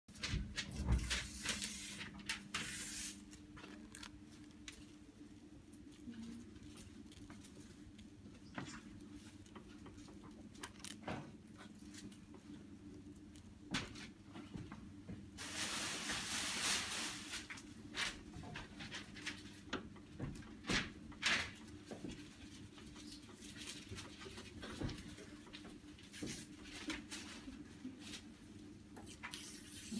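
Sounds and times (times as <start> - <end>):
papery rustle: 0.2 - 5.0, 15.4 - 19.6
low steady hum: 0.2 - 20.2
brush dabbing and stroking paper: 1.1 - 4.8.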